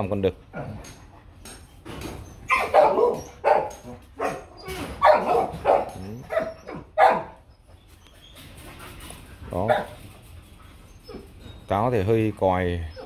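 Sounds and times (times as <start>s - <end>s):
dog barking: 2.5s - 7.4s.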